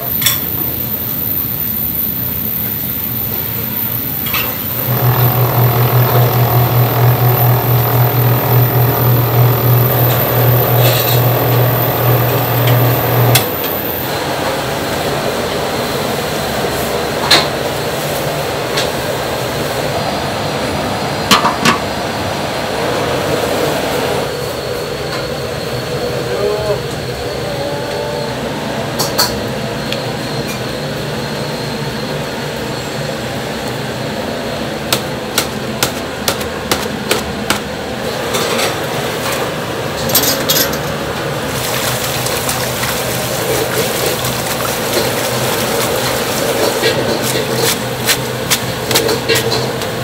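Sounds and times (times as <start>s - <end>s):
steady kitchen roar: 0.0s - 50.0s
sink sprayer running water: 3.5s - 14.2s, 40.2s - 49.9s.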